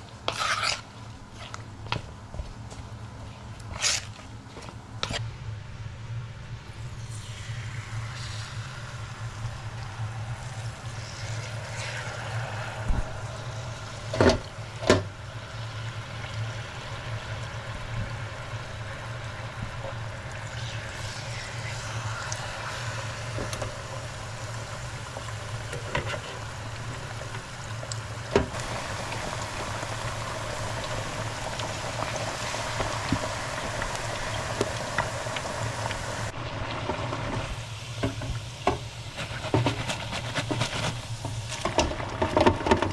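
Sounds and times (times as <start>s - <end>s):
potatoes deep-frying in oil: 0.0s - 42.9s
low hum: 4.8s - 25.8s.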